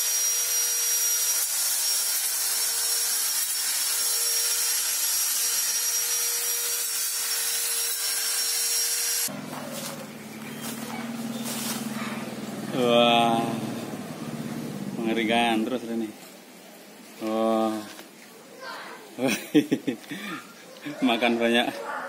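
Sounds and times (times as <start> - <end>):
angle grinder whining: 0.0 - 15.3
saw blade cutting branch: 0.9 - 12.4.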